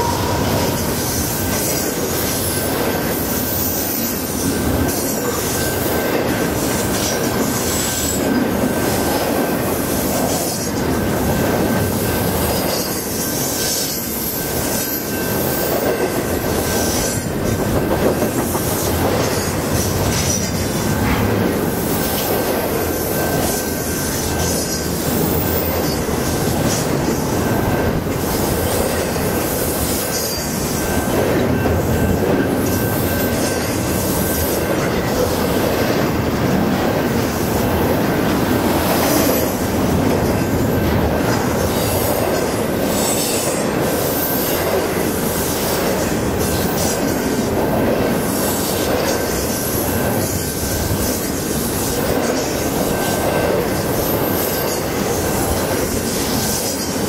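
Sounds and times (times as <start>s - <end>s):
thin high tone: 0.0s - 2.0s
freight train passing at speed: 0.0s - 57.0s
steel wheels rushing on rail: 0.0s - 57.0s.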